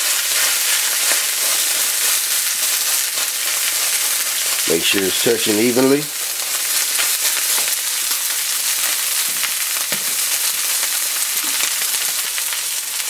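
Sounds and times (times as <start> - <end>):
steak sizzling in a skillet: 0.0 - 13.0.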